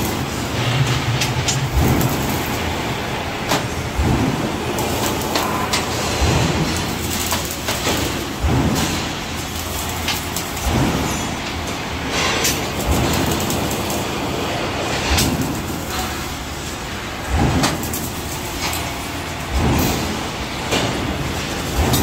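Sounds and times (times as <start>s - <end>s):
machinery low hum: 0.0s - 22.0s
metallic clanks and knocks: 17.2s - 22.0s.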